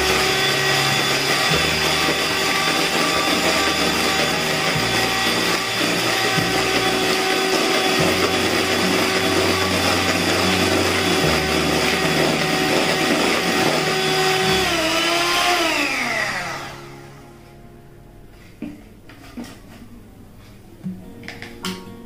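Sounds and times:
mixer motor spinning down: 0.0s - 17.2s
electric hand mixer whirring: 0.0s - 17.3s.

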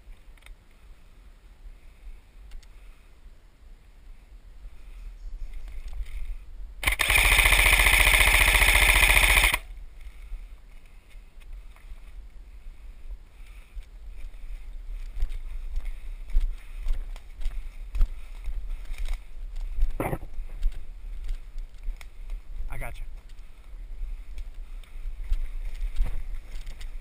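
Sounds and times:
airsoft gun full-auto burst: 6.8s - 9.7s.

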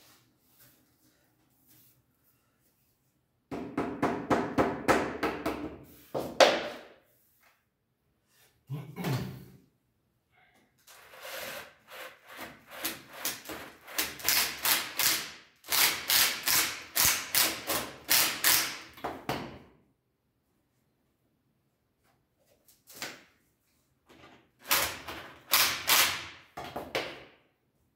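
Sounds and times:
tool scraping wood: 10.9s - 14.2s.

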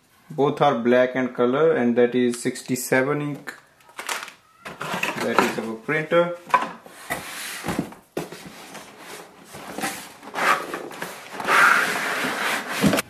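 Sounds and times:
cardboard rubbing and scraping: 6.9s - 13.0s.

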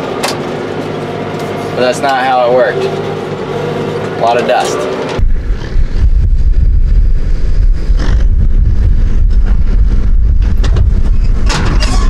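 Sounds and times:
tractor and baler engine hum: 0.0s - 5.4s.

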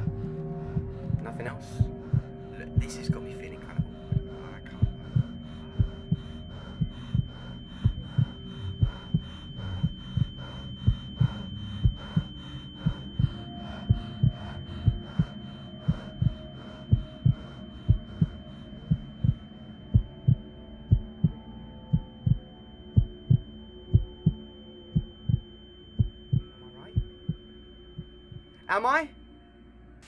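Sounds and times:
heartbeat-like thumping pulse: 0.0s - 29.0s
high-pitched ringing tone: 0.0s - 30.0s
low droning hum: 0.0s - 30.0s.

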